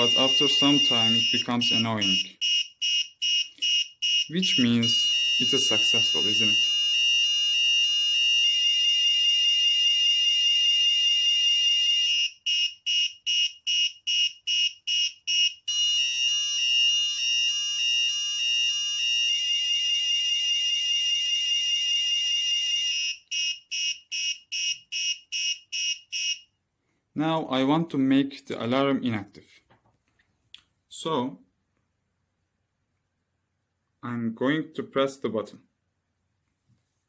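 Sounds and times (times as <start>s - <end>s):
electronic alarm buzzer: 0.0s - 26.5s.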